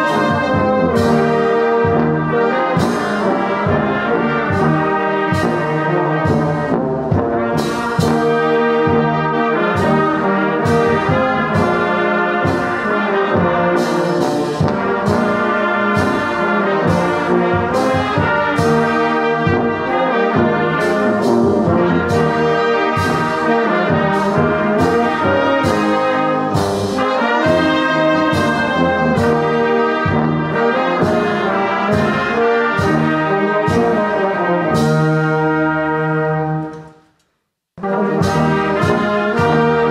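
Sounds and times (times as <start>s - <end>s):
brass band playing a hymn: 0.0s - 37.0s, 37.8s - 39.9s.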